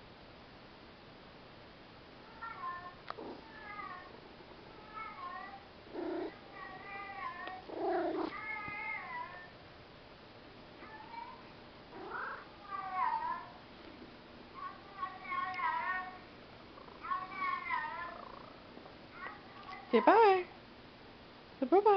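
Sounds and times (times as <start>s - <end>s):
cat meowing: 12.0s - 13.5s.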